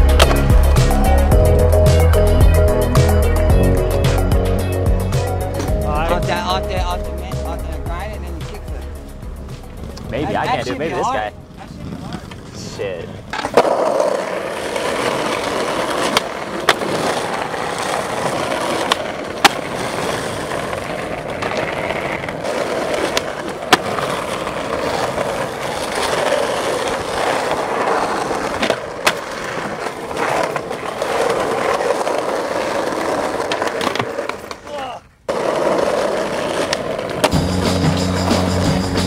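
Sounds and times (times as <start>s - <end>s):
skateboard clacks: 0.0s - 1.3s, 11.6s - 39.0s
skateboard wheels rolling: 0.0s - 39.0s.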